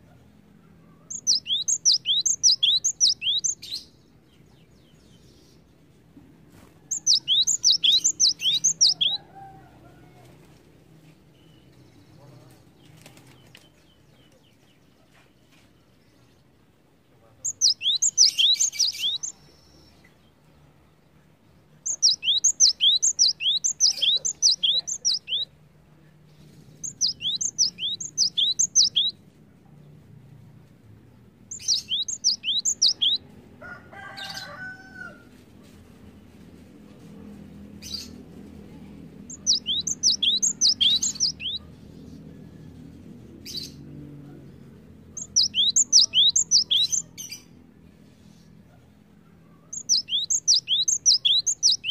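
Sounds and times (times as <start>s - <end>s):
bird singing rapid whistles: 1.1s - 3.9s, 6.9s - 9.2s, 17.5s - 19.4s, 21.9s - 25.5s, 26.8s - 29.2s, 31.5s - 33.2s, 39.3s - 41.6s, 45.2s - 47.1s, 49.8s - 51.9s.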